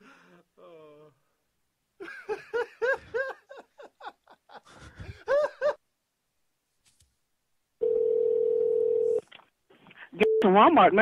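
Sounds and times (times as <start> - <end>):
man laughing over telephone: 2.0 - 5.8.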